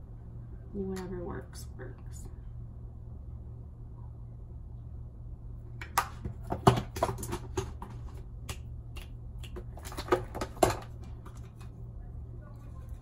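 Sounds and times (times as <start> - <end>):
low hum: 0.0 - 6.5
makeup items clicking and tapping: 5.8 - 11.7.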